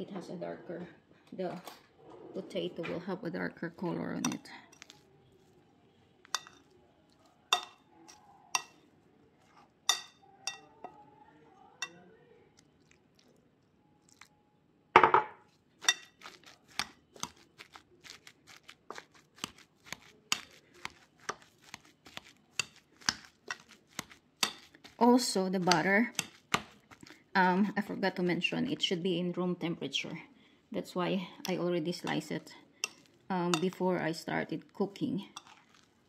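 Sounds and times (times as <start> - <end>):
potato masher knocking ceramic bowl: 25.6 - 27.1.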